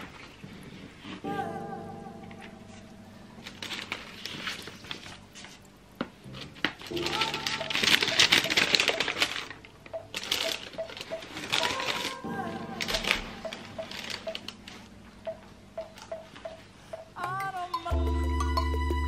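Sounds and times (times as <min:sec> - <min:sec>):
tissue paper rustling and crinkling: 0:02.4 - 0:15.0.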